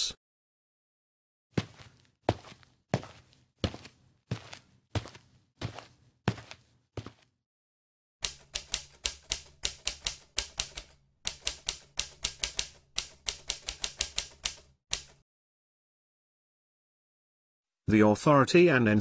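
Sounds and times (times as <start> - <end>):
keyboard typing clicks: 8.2 - 15.2.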